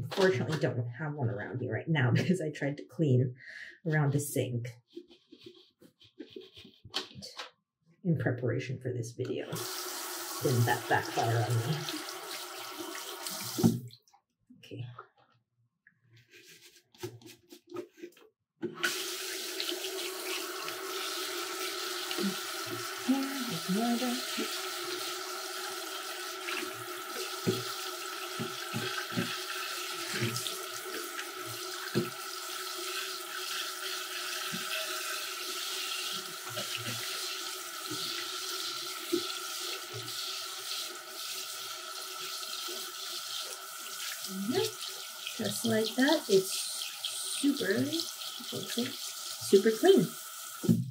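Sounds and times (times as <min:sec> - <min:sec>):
tap water running into sink: 0:09.5 - 0:13.9, 0:18.6 - 0:50.9.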